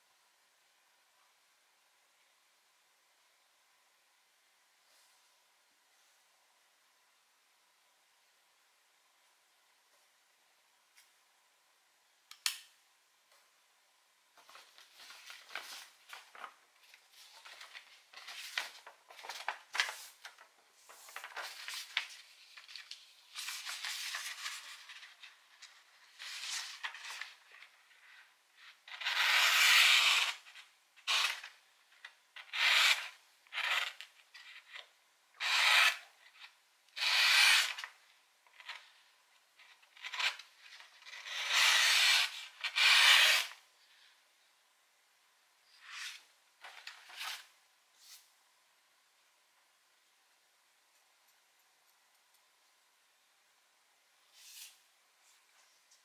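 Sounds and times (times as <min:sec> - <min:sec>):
knife slicing through paper: 0:28.9 - 0:30.4.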